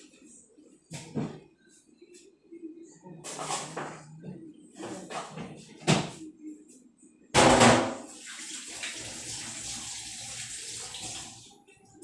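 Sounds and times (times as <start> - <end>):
tap water running into sink: 8.1 - 11.5.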